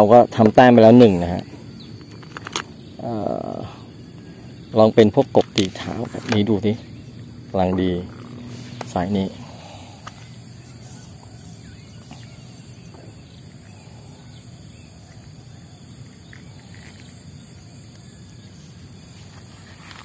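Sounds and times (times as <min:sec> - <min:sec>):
high-pitched insect drone: 0:00.0 - 0:20.0
faint bird chirps: 0:06.6 - 0:19.8.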